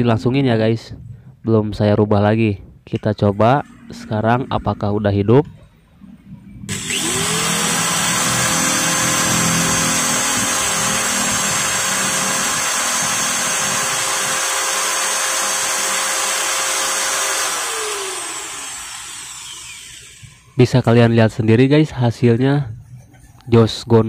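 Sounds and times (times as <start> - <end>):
angle grinder motor running: 6.7 - 20.6.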